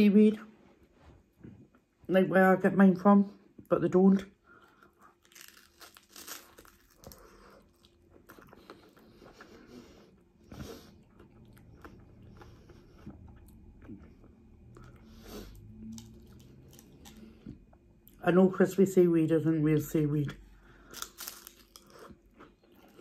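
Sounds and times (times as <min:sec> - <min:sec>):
prawn cracker crunching: 0:05.0 - 0:08.9, 0:20.9 - 0:23.0.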